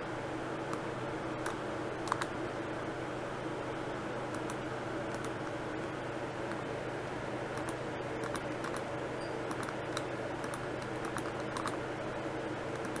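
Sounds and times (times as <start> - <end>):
steady low hum: 0.0 - 13.0
keyboard and mouse clicking: 1.4 - 2.3, 4.3 - 5.6, 7.6 - 8.9, 9.5 - 11.8, 12.7 - 13.0.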